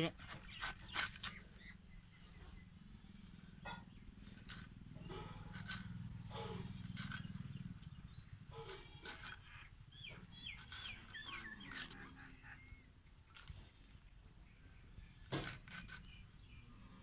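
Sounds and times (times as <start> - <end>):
cabbage crunching on blade: 0.1 - 1.4, 4.2 - 7.9, 8.5 - 12.6, 15.2 - 16.3
bird chirping: 0.2 - 5.3, 6.3 - 13.7, 14.4 - 17.0.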